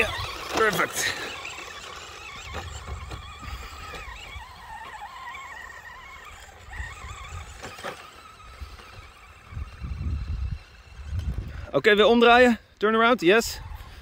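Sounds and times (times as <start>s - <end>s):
electric motor whining: 0.0s - 12.4s
wind rumble on microphone: 8.5s - 11.8s.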